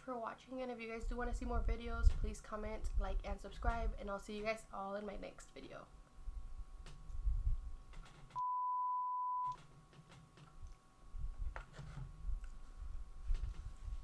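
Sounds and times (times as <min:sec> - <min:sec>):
censor bleep tone: 0:08.4 - 0:09.6.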